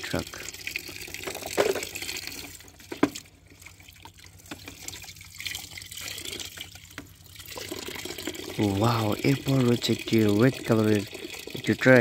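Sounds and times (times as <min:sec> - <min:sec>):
water sloshing in plastic tub: 0:00.2 - 0:08.7.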